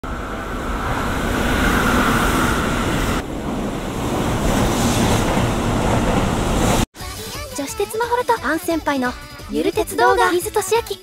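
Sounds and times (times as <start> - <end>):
electric train passing: 0.0 - 6.9.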